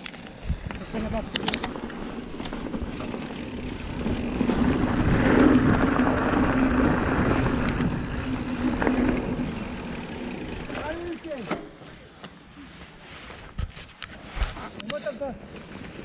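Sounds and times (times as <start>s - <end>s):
bike tyres rolling on trail: 0.0s - 16.0s
wind rushing noise: 2.8s - 9.5s.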